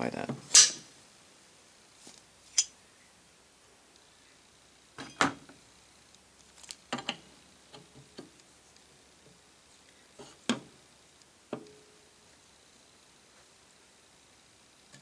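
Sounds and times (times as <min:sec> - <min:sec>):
metal clanks and clinks: 0:05.0 - 0:05.4.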